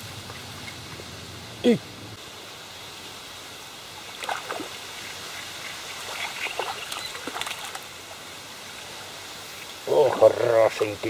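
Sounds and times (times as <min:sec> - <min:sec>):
steady hiss: 0:00.0 - 0:11.0
fish splashing at water surface: 0:04.0 - 0:08.1.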